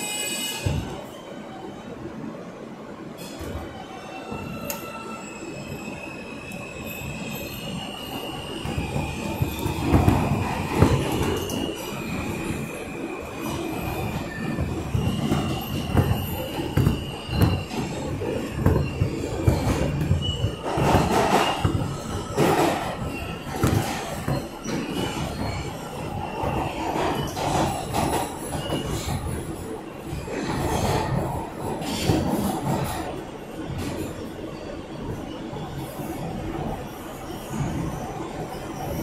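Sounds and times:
train wheel squeal on rails: 0.0s - 2.0s, 3.0s - 39.0s
train wheels clanking and knocking: 7.8s - 34.3s.

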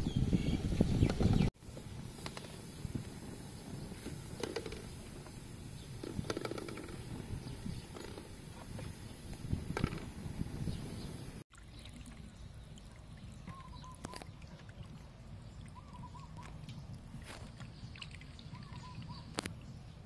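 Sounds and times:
bird warbling: 15.7s - 16.6s, 17.9s - 19.4s.

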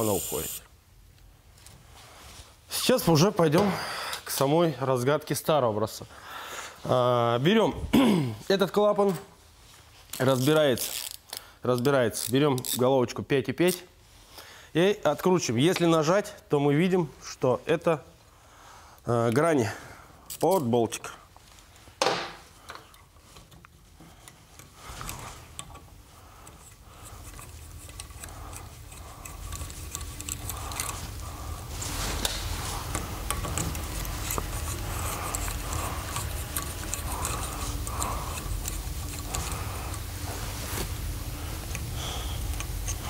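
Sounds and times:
hand driver clicking and rubbing: 22.6s - 43.0s.

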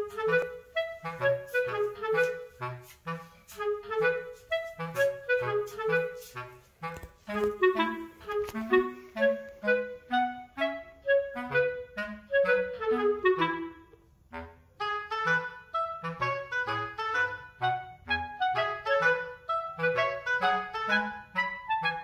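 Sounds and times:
light tune of detached notes: 0.0s - 14.0s.

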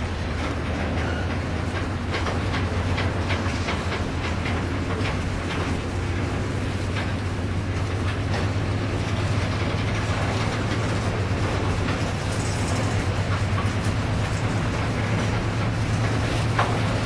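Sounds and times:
diesel locomotives droning: 0.0s - 17.0s.

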